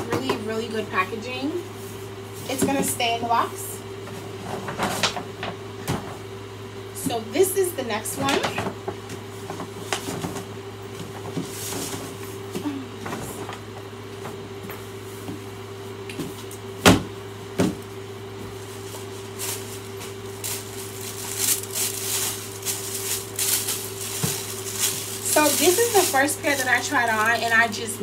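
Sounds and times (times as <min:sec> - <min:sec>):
steady low hum: 0:00.0 - 0:28.0
cardboard box and paper bag handled: 0:18.6 - 0:27.6
paper rustling: 0:18.6 - 0:27.6.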